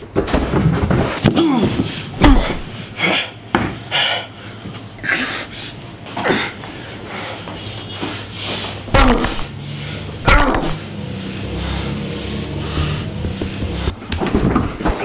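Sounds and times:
grunts and panting: 1.2 - 14.1
thuds of blows: 8.9 - 9.5, 10.3 - 10.8, 12.6 - 15.0
body hitting wooden floor: 12.7 - 15.0.

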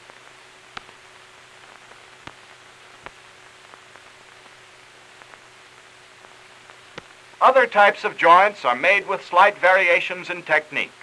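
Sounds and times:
faint steady hum: 0.0 - 11.0
film soundtrack hiss: 0.0 - 11.0
clicks and pops: 1.6 - 5.5, 6.2 - 7.2.

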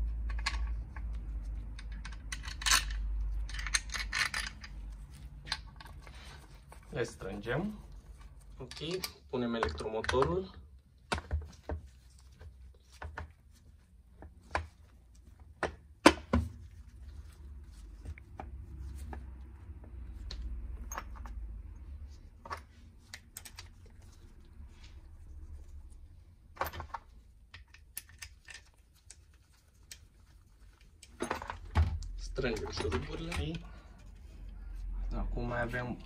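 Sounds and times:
metal clicks and knocks: 0.2 - 6.1, 30.9 - 33.8.

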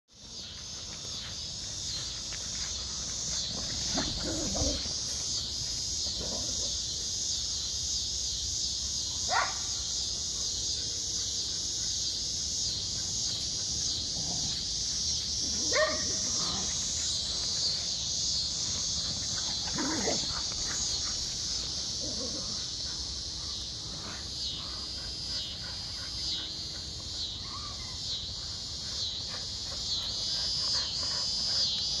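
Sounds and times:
insects chirring: 0.1 - 32.0
dogs barking: 3.7 - 5.0, 9.3 - 9.6, 15.4 - 17.0, 18.8 - 21.3.

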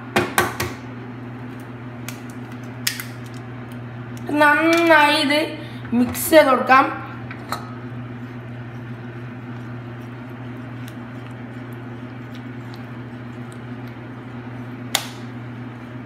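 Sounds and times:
steady low hum: 0.0 - 16.0
whisk beating batter: 7.8 - 16.0.

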